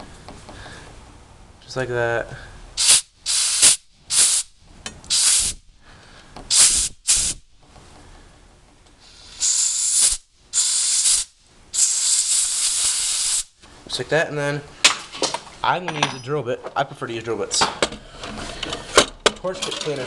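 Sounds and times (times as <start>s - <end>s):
compressed air blow gun hissing: 2.8s - 4.5s, 5.1s - 5.6s, 6.5s - 7.5s, 9.0s - 13.6s.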